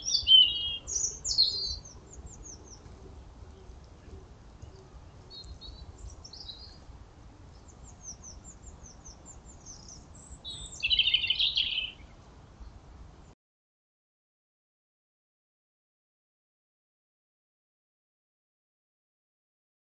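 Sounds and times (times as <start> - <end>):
songbirds chirping and whistling: 0.0 - 6.9, 7.5 - 12.2.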